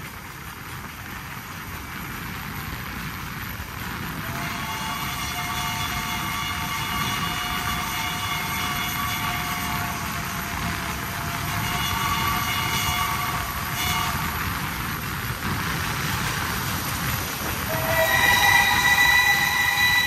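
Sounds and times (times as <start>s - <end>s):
train running noise: 0.0s - 20.0s
steam locomotive whistle: 4.2s - 14.5s, 17.6s - 20.0s.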